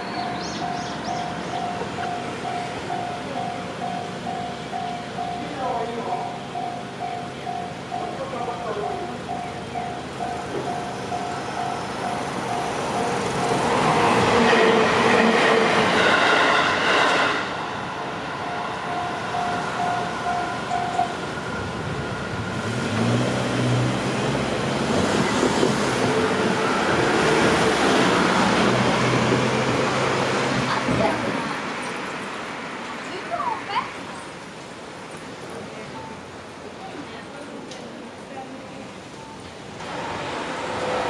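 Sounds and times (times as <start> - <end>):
train rushing over crossing: 0.0 - 37.4, 38.5 - 41.0
road traffic moving: 0.0 - 41.0
level crossing alarm dinging: 18.4 - 21.3.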